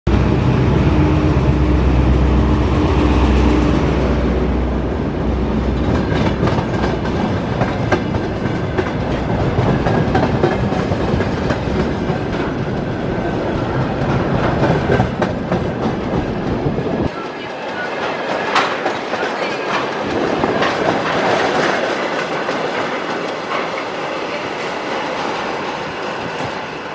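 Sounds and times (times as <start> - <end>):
diesel locomotive engine: 0.1 - 26.9
wagon wheels clattering over rail joints: 5.8 - 24.1.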